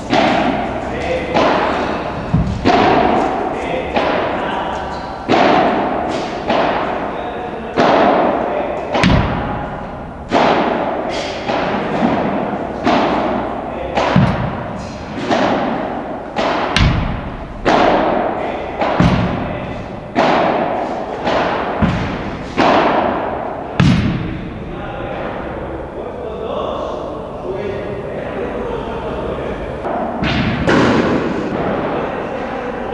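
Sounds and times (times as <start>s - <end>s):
balls bouncing on court: 0.0s - 7.1s, 7.8s - 24.5s
rackets striking balls: 0.0s - 24.8s, 29.8s - 32.1s.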